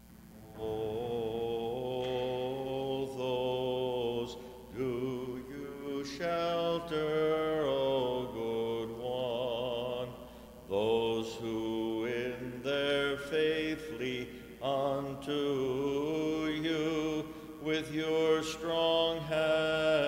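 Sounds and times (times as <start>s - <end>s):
person chanting ornamented melody: 0.3s - 20.0s
singer breathing: 4.3s - 4.7s, 10.2s - 10.7s, 17.2s - 17.6s.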